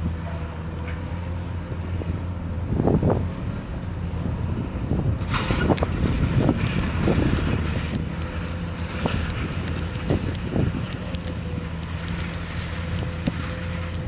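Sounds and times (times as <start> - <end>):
diesel machinery hum: 0.0 - 14.0
faint sharp clicks: 6.6 - 14.0.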